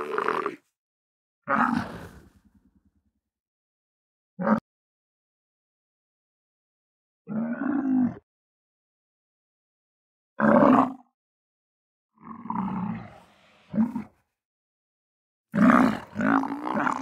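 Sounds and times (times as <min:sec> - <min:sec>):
camel grunting: 0:00.0 - 0:00.6, 0:01.5 - 0:02.4, 0:15.6 - 0:17.0.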